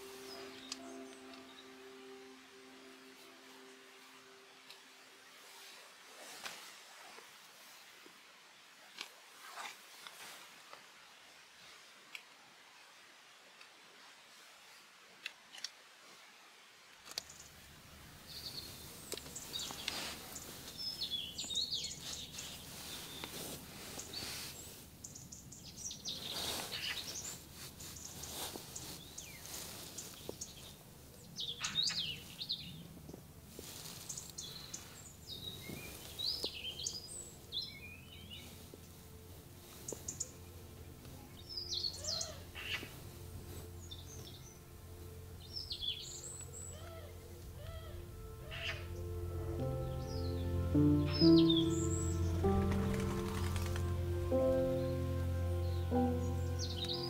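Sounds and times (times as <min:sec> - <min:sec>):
soft background music: 0:00.0 - 0:07.9, 0:17.6 - 0:57.0
small birds chirping: 0:17.1 - 0:57.0.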